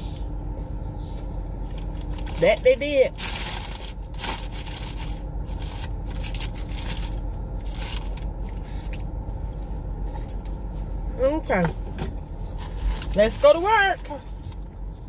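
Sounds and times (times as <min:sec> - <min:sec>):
low steady hum: 0:00.0 - 0:15.0
paper wrapping crinkling: 0:01.7 - 0:08.3.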